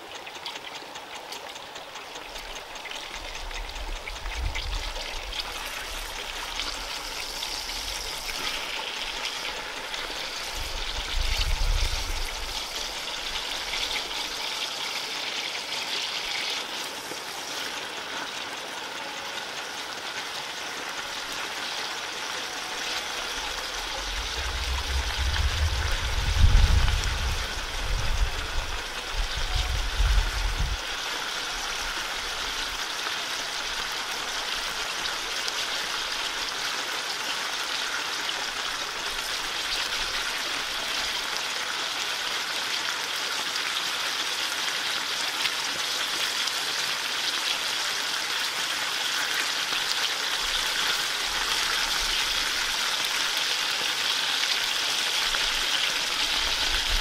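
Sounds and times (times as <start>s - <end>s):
water rushing: 0.0s - 57.0s
wind buffeting microphone: 10.4s - 13.0s, 23.7s - 30.9s.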